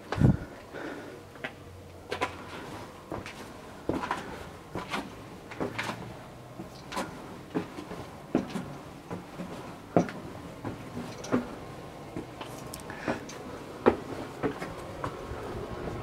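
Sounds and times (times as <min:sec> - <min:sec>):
footsteps on stone stairs: 0:00.0 - 0:15.7.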